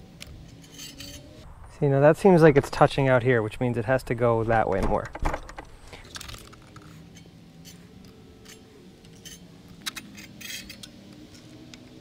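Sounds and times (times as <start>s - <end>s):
faint steady hum: 0.0s - 12.0s
metal scraping against saw blade: 0.4s - 1.4s, 6.9s - 11.5s.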